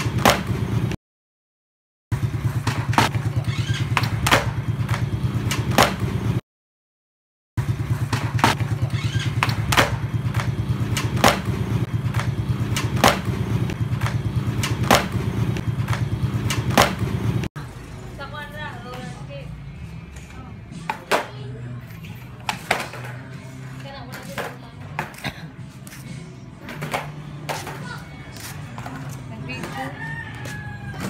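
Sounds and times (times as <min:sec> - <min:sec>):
skateboard wheels rolling on concrete: 0:02.2 - 0:06.4, 0:07.6 - 0:17.5, 0:18.6 - 0:31.0.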